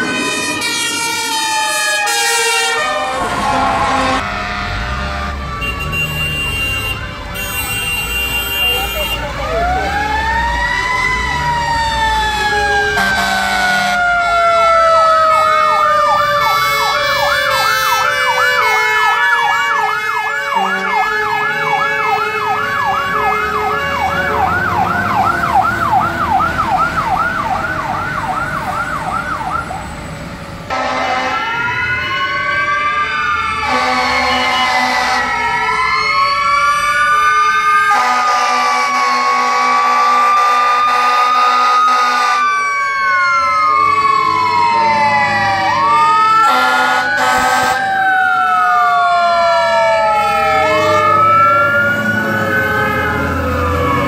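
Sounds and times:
siren wailing up and down: 0.0 - 7.2, 8.6 - 54.0
air horn blasts: 2.1 - 9.4, 13.0 - 14.0, 20.4 - 22.4, 30.7 - 31.5, 33.6 - 35.4, 38.0 - 42.4, 46.4 - 47.9
electronic siren yelping: 8.6 - 29.9, 30.7 - 54.0
mechanical siren winding down: 42.6 - 54.0.

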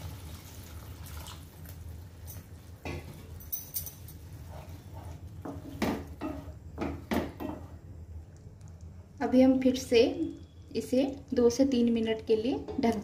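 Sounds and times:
spatula stirring curry in pan: 4.2 - 7.8
spatula scraping and knocking pan: 4.3 - 7.8.

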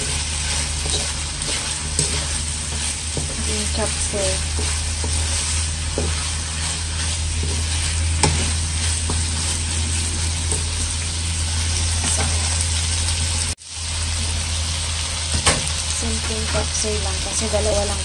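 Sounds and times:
spatula scraping pan: 0.0 - 12.6
steady low hum: 0.0 - 13.6
food sizzling in oil: 0.0 - 18.0.

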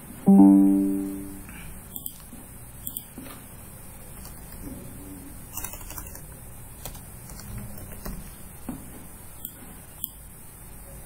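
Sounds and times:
computer keyboard typing: 5.5 - 8.2.

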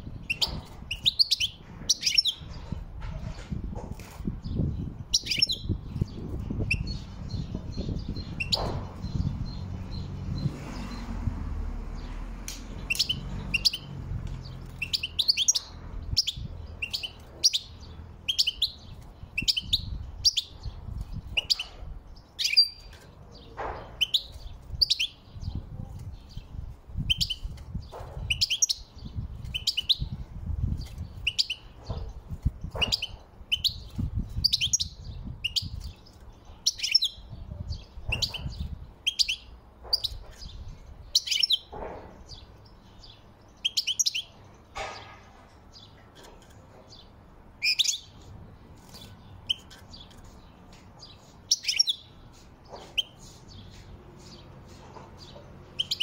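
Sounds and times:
finch chirping and singing: 0.0 - 56.0.

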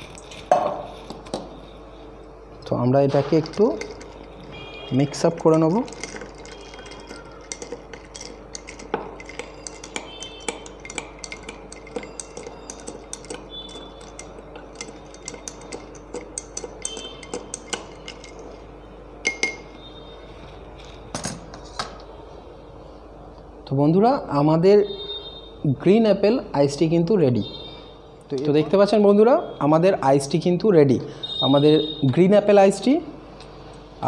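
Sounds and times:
steady low hum: 0.0 - 32.2
spoon stirring ice in glass: 3.3 - 19.7.

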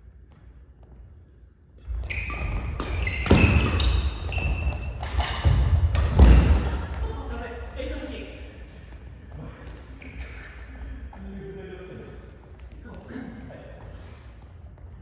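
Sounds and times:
shoes squeaking on floor: 1.8 - 5.9, 9.8 - 11.0
rackets hitting shuttlecock: 2.3 - 7.0.

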